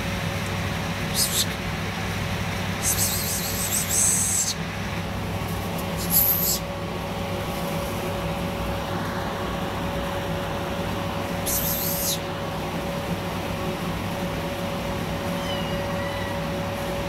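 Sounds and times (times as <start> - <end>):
steady low hum: 0.0 - 17.0
high hissing bursts: 1.1 - 1.6, 2.8 - 4.6, 6.0 - 6.7, 11.4 - 12.3.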